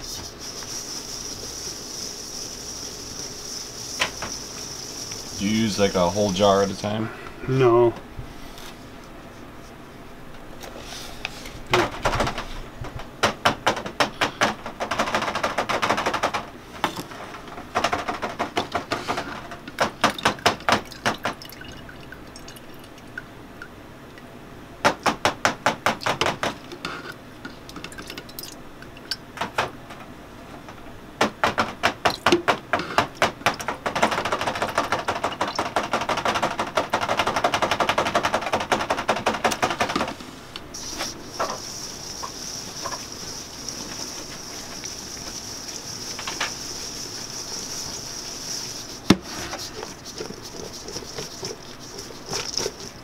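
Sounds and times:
steady rustling: 39.9s - 53.0s.

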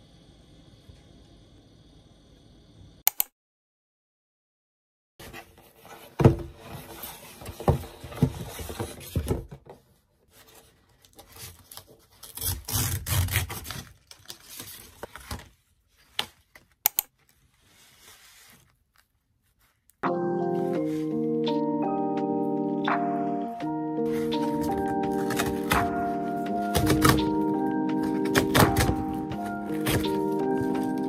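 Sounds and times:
cardboard tearing: 10.4s - 19.1s, 24.1s - 31.0s.

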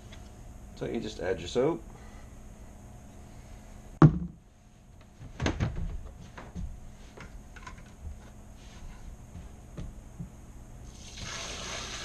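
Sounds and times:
handling knocks on plastic: 4.0s - 4.4s
sharp thump: 4.0s - 4.4s.

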